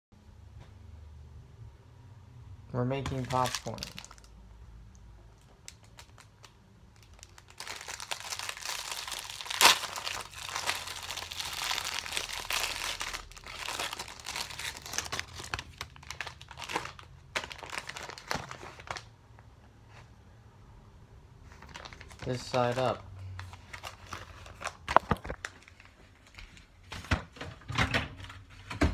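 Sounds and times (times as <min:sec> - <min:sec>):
paper bag unfolding: 0:03.0 - 0:04.2, 0:21.6 - 0:22.5
plastic package crinkling: 0:03.0 - 0:04.4, 0:05.3 - 0:19.1, 0:21.5 - 0:26.7
wrapper ripping: 0:03.0 - 0:04.4, 0:05.4 - 0:19.1, 0:21.5 - 0:26.4.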